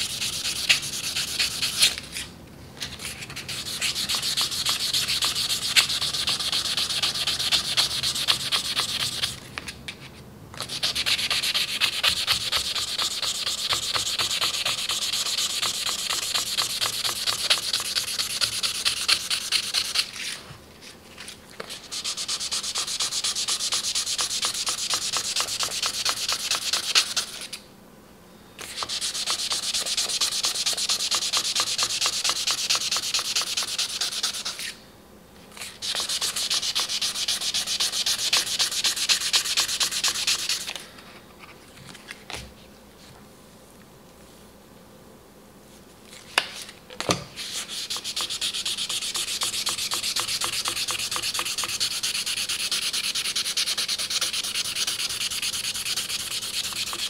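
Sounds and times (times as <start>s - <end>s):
sandpaper rubbing on steel blade: 0.0s - 2.3s, 3.0s - 9.4s, 10.6s - 20.4s, 21.7s - 27.6s, 28.7s - 34.8s, 35.6s - 40.7s, 47.4s - 57.0s.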